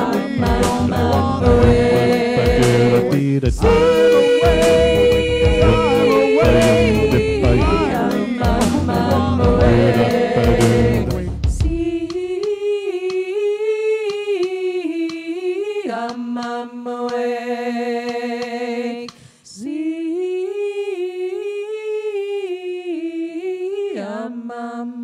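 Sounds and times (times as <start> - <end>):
person singing wavering melody: 0.0 - 10.8
a cappella group singing: 0.0 - 25.0.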